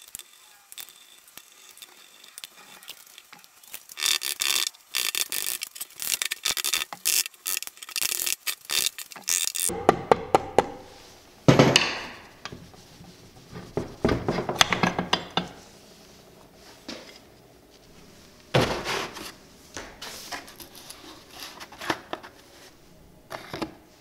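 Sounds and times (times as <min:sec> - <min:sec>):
metal parts clinking and rattling: 0:04.0 - 0:09.7
mallet knocking on metal: 0:09.7 - 0:11.0.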